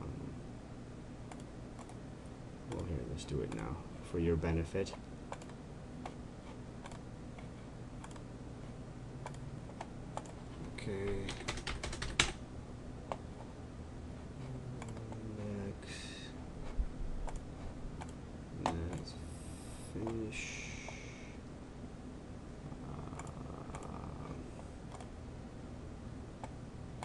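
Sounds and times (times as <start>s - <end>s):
steady low hum: 0.0s - 27.0s
mouse clicks: 1.3s - 2.0s
keyboard keystrokes: 11.0s - 12.4s.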